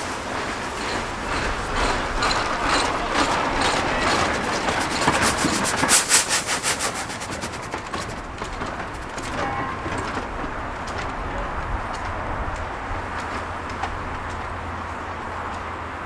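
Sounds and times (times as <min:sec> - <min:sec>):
steam hiss and running noise: 0:00.0 - 0:09.3
steam locomotive beats: 0:00.0 - 0:14.5.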